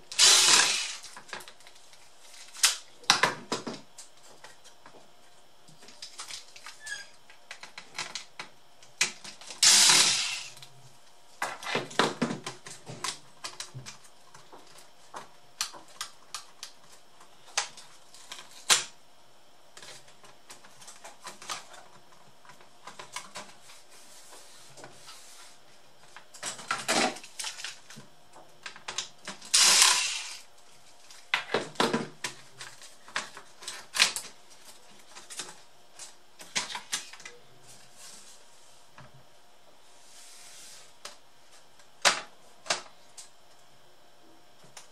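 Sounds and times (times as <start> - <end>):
electric screwdriver running: 0.1 - 1.1, 9.6 - 10.5, 29.5 - 30.4.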